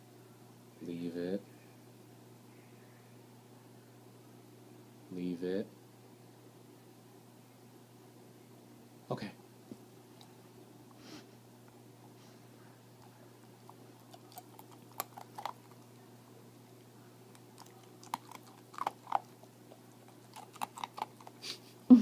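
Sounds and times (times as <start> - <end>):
puppy chewing and crunching: 12.9 - 16.0, 16.8 - 21.7.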